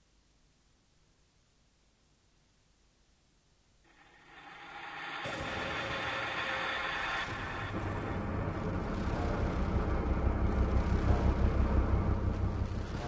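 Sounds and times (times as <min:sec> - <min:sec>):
noisy synthesizer drone: 0:03.9 - 0:13.0
deep bass rumble: 0:05.3 - 0:13.0.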